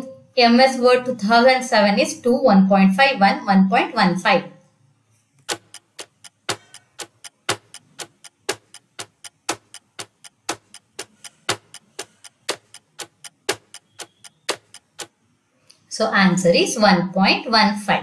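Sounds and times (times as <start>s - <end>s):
clock ticking: 5.4s - 15.2s.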